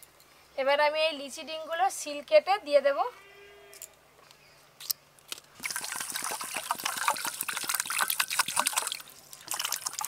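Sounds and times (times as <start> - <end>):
drink pouring into metal bowl: 5.6 - 10.0.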